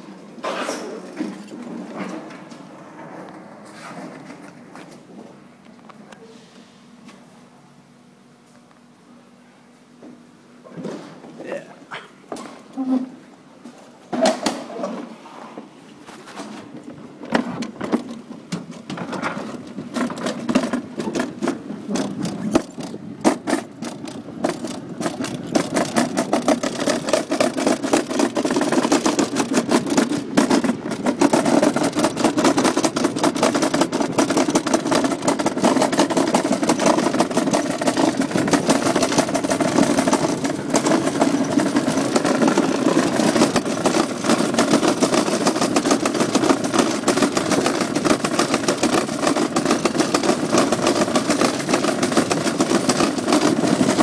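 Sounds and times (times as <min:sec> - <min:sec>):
bobsleigh sled rattling down metal track: 0:17.3 - 0:54.0.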